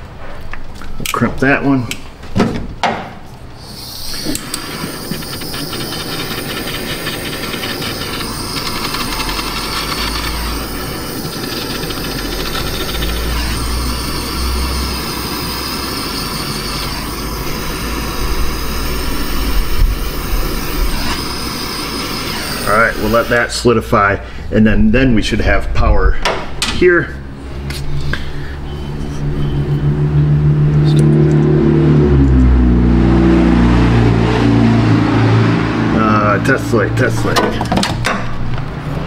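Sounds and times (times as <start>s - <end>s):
butane torch hissing: 3.6s - 24.4s.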